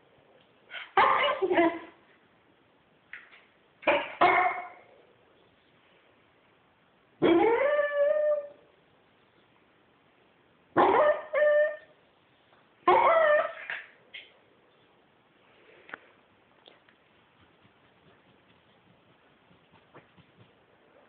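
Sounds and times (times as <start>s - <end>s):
dog yip: 0.8s - 1.6s, 4.2s - 4.8s, 7.2s - 8.6s, 10.8s - 11.9s, 12.9s - 13.8s
dog howling and whining: 7.2s - 8.6s, 10.8s - 11.9s, 12.9s - 13.7s.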